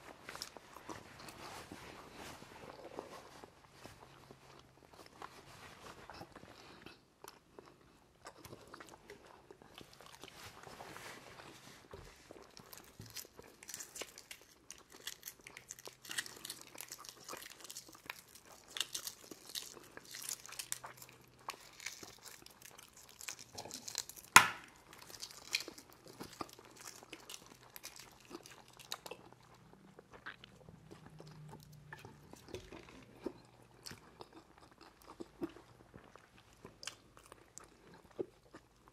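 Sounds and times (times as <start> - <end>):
chewing: 0.2 - 38.9
eggshells crackling as peeled: 12.4 - 29.0.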